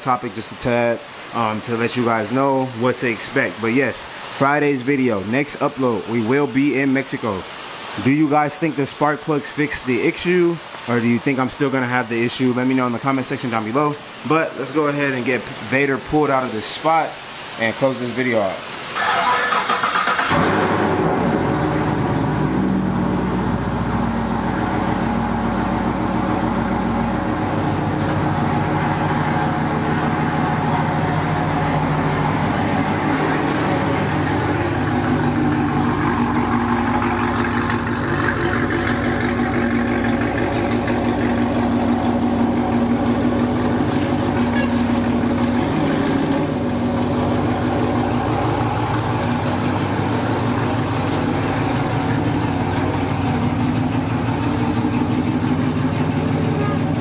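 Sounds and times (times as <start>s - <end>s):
car engine starting and idling: 18.8s - 57.0s.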